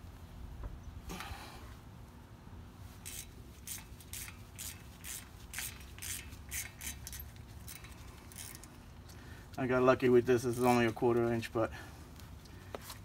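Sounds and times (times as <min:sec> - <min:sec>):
ratchet clicking: 0:03.0 - 0:09.2.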